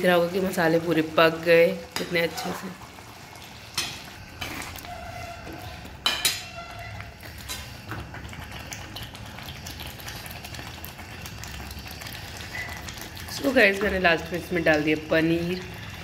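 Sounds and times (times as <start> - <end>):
faint steady simmer: 0.0 - 16.0
metal ladle clinking and scraping: 3.8 - 7.7.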